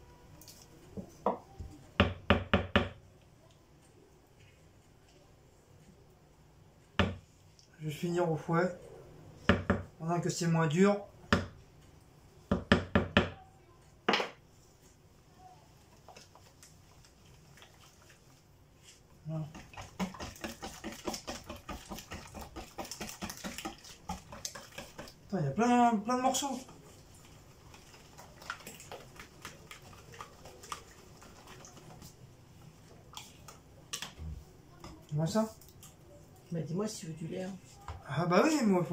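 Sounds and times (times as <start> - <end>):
wooden spoon knocking on bowl: 9.5 - 9.9
whisk ticking in batter: 19.3 - 32.2
whisk clicking against bowl: 19.5 - 25.3.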